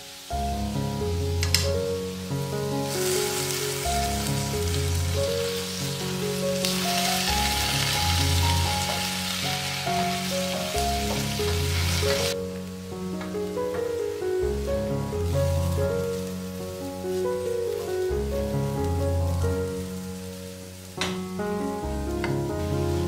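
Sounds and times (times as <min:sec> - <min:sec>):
potatoes sizzling in a pan: 0:00.0 - 0:23.0.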